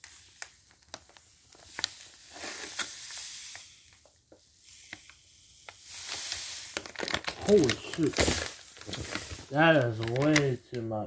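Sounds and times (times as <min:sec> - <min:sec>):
sugar pouring into cup: 0:00.0 - 0:10.6.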